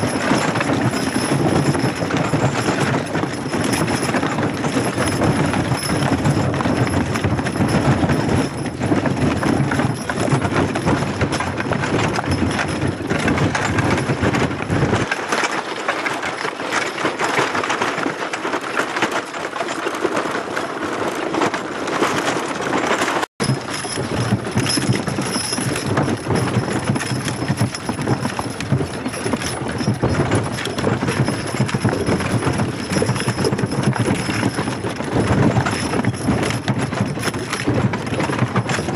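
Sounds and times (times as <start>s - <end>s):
horse hooves clip-clopping: 0.0s - 38.9s
wagon rattling on dirt track: 0.0s - 38.9s.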